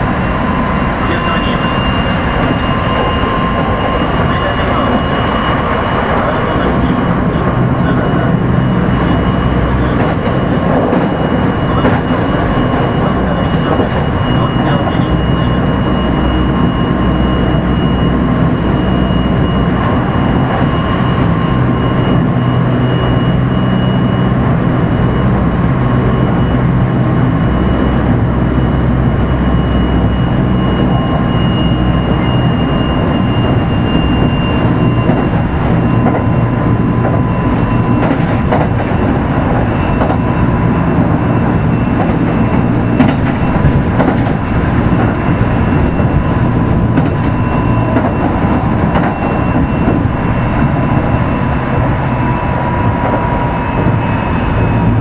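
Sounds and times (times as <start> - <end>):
train wheels rumbling on rail: 0.0 - 55.0
rail-joint clicks: 8.7 - 15.2, 33.1 - 40.4, 41.0 - 51.9
thin high whine: 44.4 - 55.0.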